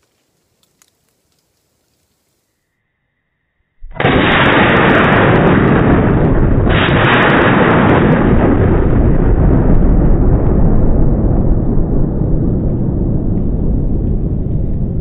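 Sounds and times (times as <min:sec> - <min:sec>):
explosion blast: 0:03.8 - 0:15.0.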